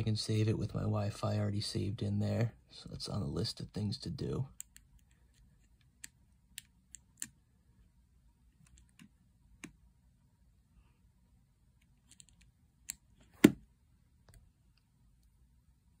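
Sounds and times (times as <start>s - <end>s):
device set down thump: 13.3s - 13.6s.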